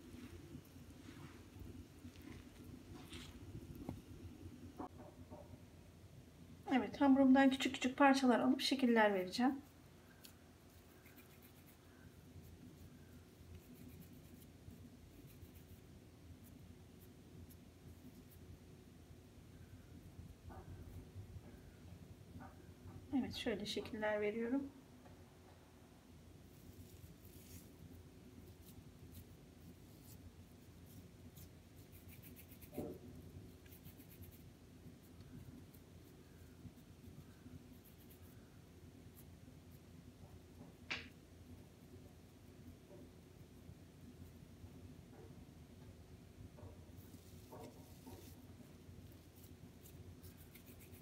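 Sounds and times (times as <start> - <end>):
low room hum: 0.0 - 51.0
palms rubbing dough: 9.2 - 18.5, 26.4 - 40.4, 46.6 - 51.0
hands rolling dough: 46.4 - 51.0.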